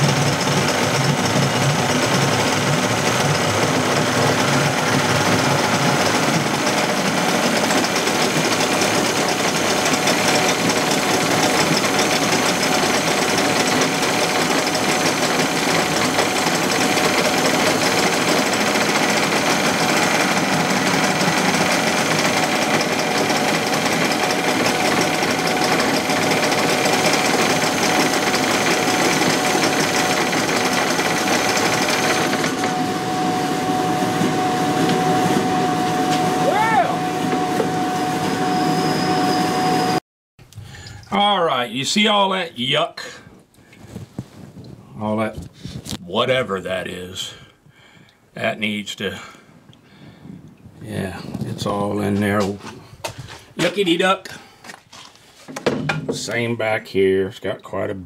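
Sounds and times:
outboard motor running: 0.0s - 40.0s.

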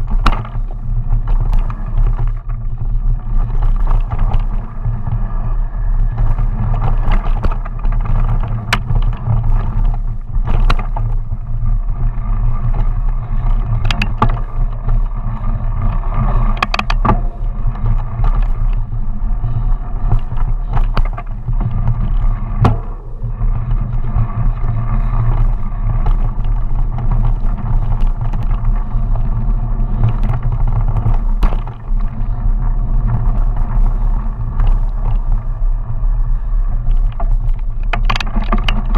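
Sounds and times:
bike chain and frame rattling: 0.0s - 38.9s
tyres rumbling on dirt: 0.0s - 38.9s
air rushing past: 21.9s - 25.8s.

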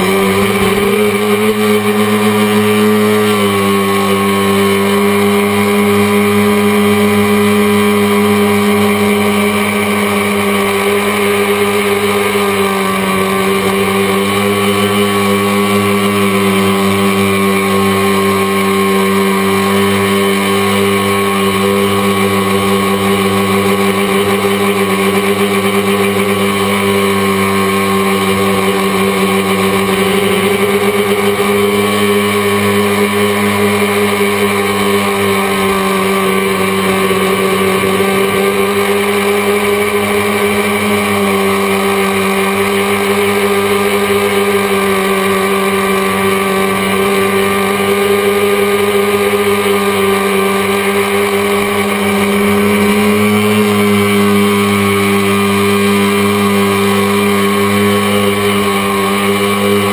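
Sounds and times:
drone motors whining: 0.0s - 59.9s.

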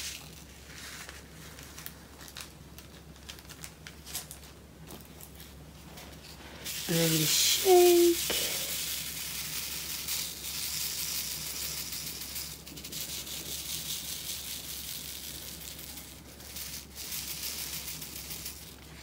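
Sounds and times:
small beads rattling in plastic tray: 6.7s - 19.0s.

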